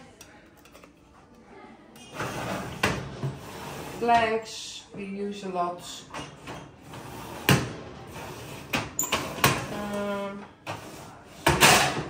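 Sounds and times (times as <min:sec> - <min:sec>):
metal drawers opening and shutting: 0:02.0 - 0:04.4, 0:05.9 - 0:12.0.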